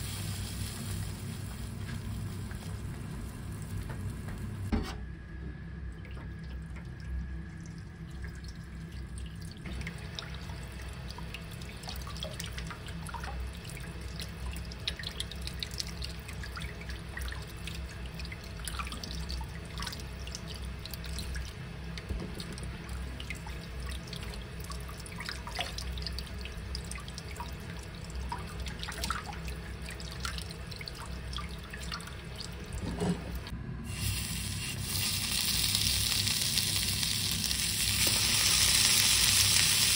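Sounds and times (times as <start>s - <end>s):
drips and splashes: 5.9s - 33.5s.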